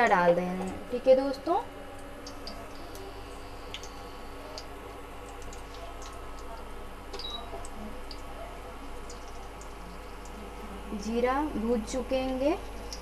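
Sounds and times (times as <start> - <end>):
steady low hum: 0.0 - 13.0
seeds popping in hot oil: 2.0 - 10.4.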